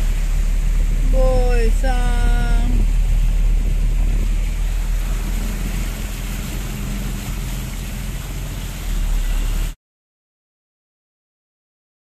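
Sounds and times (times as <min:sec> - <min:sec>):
car rumble: 0:00.0 - 0:09.8
water hissing under car: 0:00.0 - 0:09.8.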